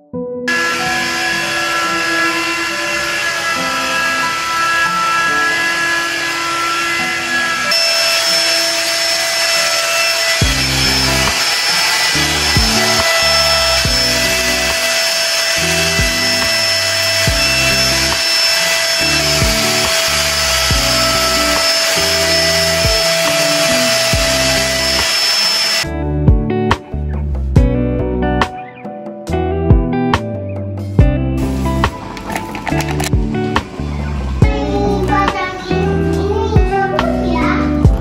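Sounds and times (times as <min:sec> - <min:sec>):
hair dryer running: 0:00.5 - 0:25.9, 0:31.4 - 0:36.2
background music with bass beat: 0:26.2 - 0:28.6, 0:29.3 - 0:32.3, 0:33.1 - 0:33.8.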